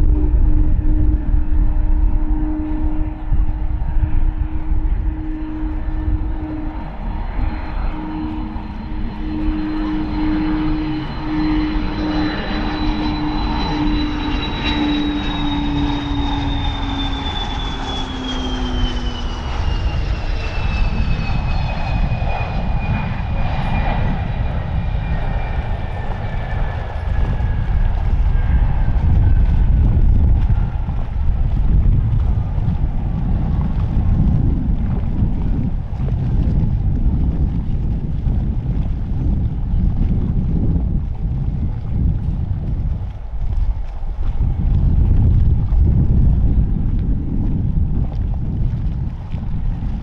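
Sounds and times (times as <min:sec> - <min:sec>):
continuous low rumble: 0:00.0 - 0:50.0
jet engine whine: 0:00.0 - 0:50.0
low steady hum: 0:00.0 - 0:50.0.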